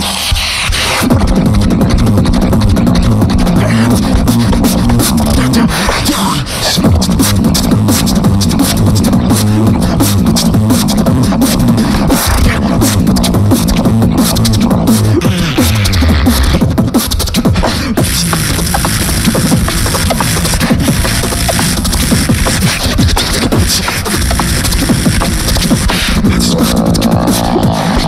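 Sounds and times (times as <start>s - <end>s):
beatboxing into microphones: 0.0s - 28.0s.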